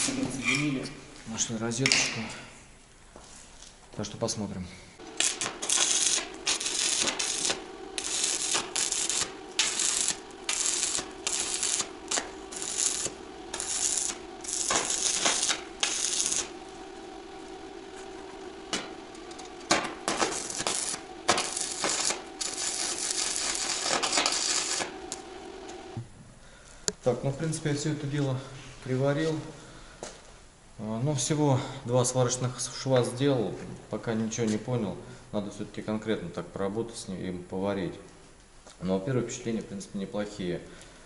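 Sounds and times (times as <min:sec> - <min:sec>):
steady hum: 0:00.0 - 0:34.0
welding arc crackling: 0:05.0 - 0:26.0.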